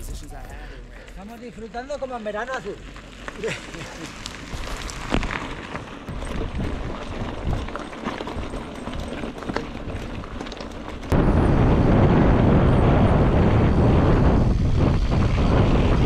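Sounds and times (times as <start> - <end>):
bike tyres crunching on trail: 0.9 - 16.0
wind rumble on microphone: 4.5 - 16.0.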